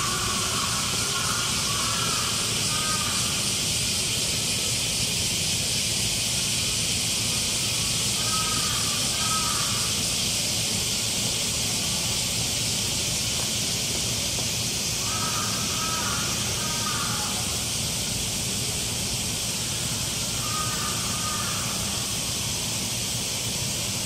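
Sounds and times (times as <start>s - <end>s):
faint calls: 0.0s - 4.3s, 7.7s - 10.3s, 14.8s - 18.0s, 19.5s - 22.5s
steady high hiss: 0.0s - 24.0s.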